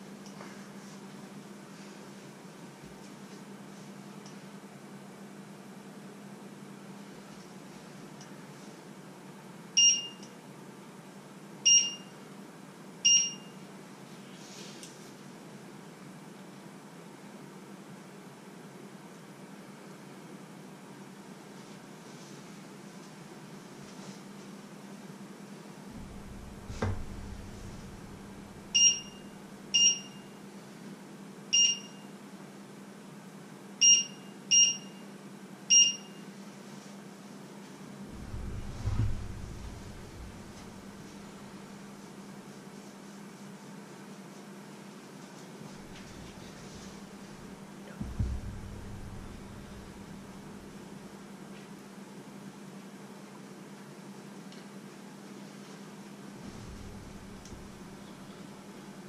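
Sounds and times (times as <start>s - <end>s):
steady low hum: 25.7s - 30.2s, 37.9s - 42.6s, 45.6s - 51.5s, 56.3s - 59.0s
soft knock: 26.0s - 28.8s, 38.1s - 41.4s, 45.7s - 51.0s, 56.4s - 58.0s
short electronic beeps: 28.7s - 30.2s.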